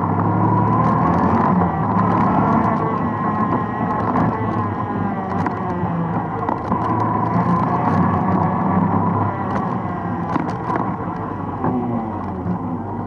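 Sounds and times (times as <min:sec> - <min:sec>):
atv engine running: 0:00.0 - 0:13.0.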